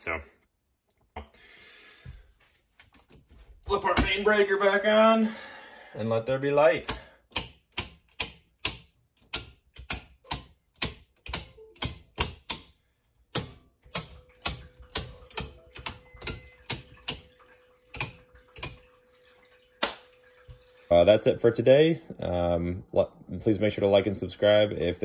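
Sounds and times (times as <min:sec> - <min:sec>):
circuit breakers clicking: 0:06.8 - 0:18.8.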